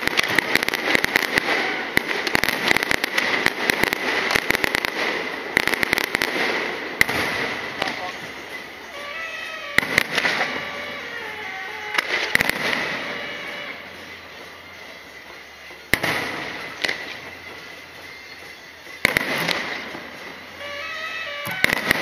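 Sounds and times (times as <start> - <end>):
fireworks bangs: 0.0 - 22.0
fireworks crackling: 0.0 - 22.0.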